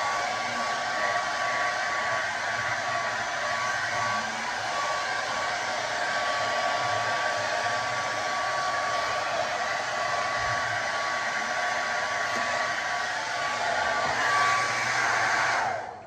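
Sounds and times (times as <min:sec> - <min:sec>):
hair dryer running: 0:00.0 - 0:16.0.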